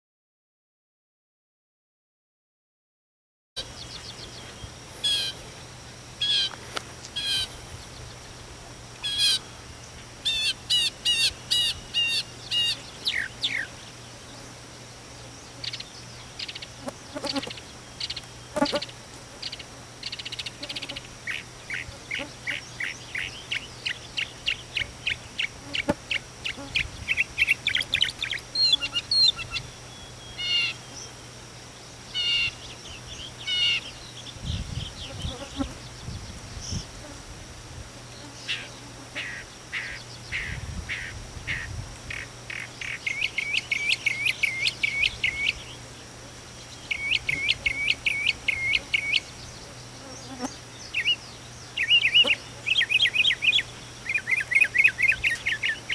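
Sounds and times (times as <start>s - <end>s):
mockingbird singing: 10.2s - 14.0s, 19.5s - 31.1s, 38.4s - 45.8s, 46.7s - 55.9s.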